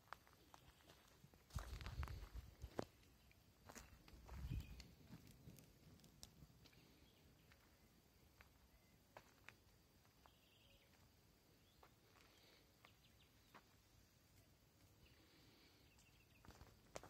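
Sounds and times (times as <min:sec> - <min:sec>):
faint high chirps: 0:02.9 - 0:05.6, 0:10.0 - 0:16.7.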